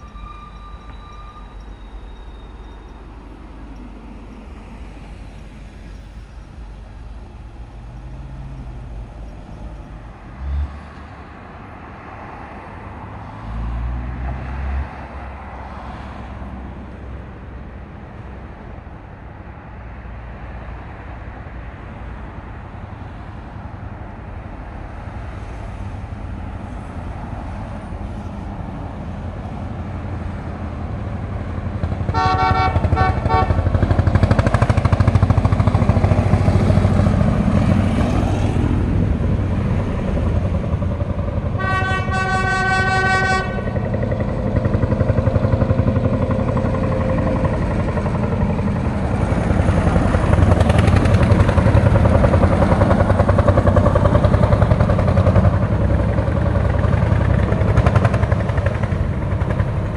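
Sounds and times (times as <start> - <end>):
tractor engines beating: 28.6 - 59.9
horn toots: 32.1 - 33.8, 41.6 - 43.8.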